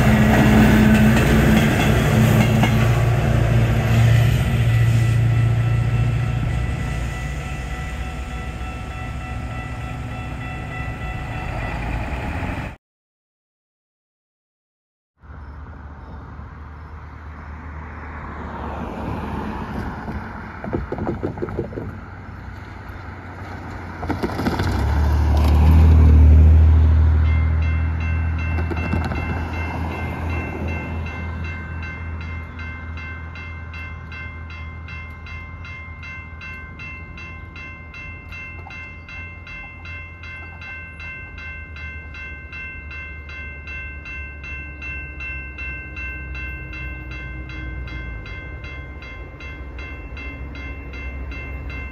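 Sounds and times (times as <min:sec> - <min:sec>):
crossing bell ringing: 0:00.0 - 0:12.8, 0:25.6 - 0:51.9
road traffic passing: 0:00.0 - 0:12.8, 0:15.2 - 0:51.9
loud vehicle passing: 0:22.0 - 0:31.4.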